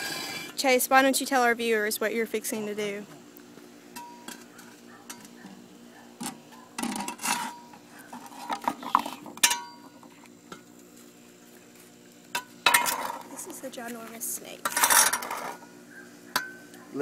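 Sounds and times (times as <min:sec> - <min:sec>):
faint steady hum: 0:00.0 - 0:17.0
shovel scraping concrete: 0:06.8 - 0:09.3, 0:14.6 - 0:15.6.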